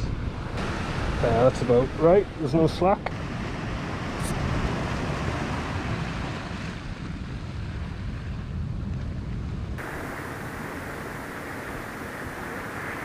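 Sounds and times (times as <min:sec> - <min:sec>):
wind buffeting microphone: 0:00.0 - 0:13.0
waves breaking on rocks: 0:09.8 - 0:13.0.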